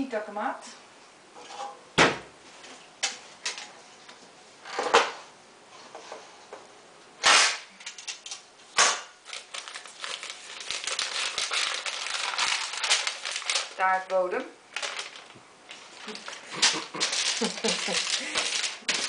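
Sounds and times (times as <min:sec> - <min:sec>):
paper wrapper crinkling: 0:09.2 - 0:19.0.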